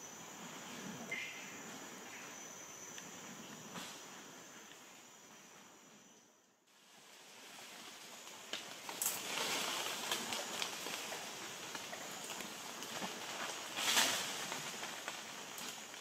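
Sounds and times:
high insect trill: 0.0 - 16.0
rustling pattering hiss: 6.7 - 16.0.

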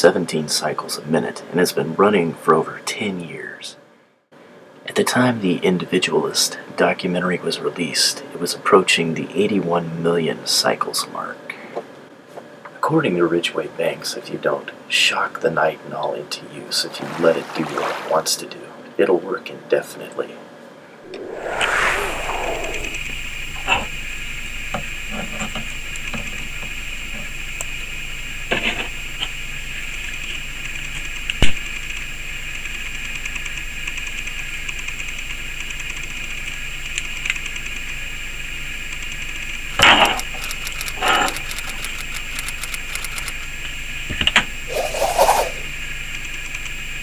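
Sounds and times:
steady hiss: 21.1 - 25.3, 44.6 - 46.3.

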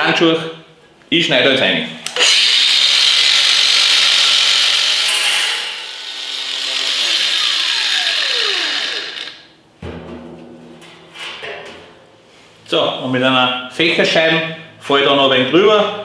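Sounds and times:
angle grinder cutting steel: 2.1 - 9.5
grinder disc winding down: 5.8 - 9.5.

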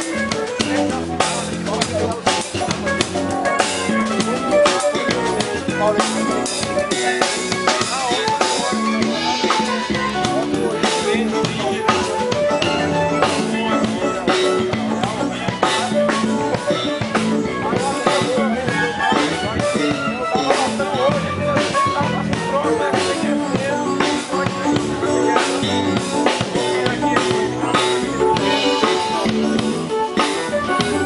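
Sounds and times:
drum kit steady beat: 0.0 - 31.0
electric bass line: 0.0 - 31.0.

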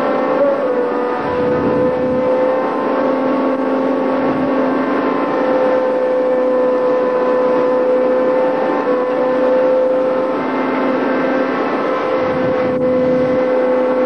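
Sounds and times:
boat engine droning hum: 0.0 - 14.0.

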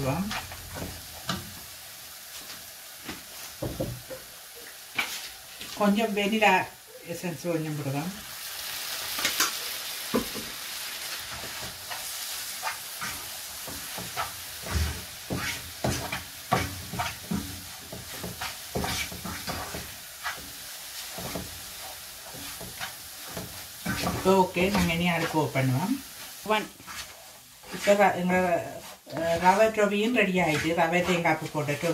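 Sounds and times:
steady sizzle: 0.0 - 31.9
spatula scraping a frying pan: 0.1 - 1.4, 4.9 - 5.7, 11.0 - 31.9.

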